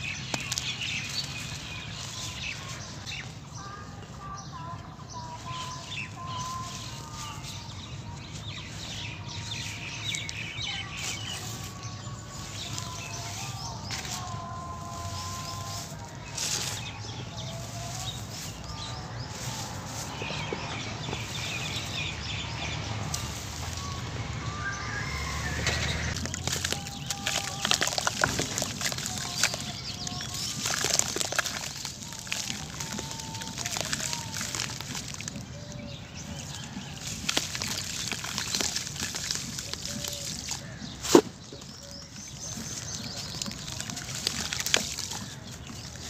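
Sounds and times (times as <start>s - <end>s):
sand-cement mix trickling through fingers: 0.0s - 3.2s, 5.5s - 46.0s
powder trickling into water: 26.1s - 46.0s.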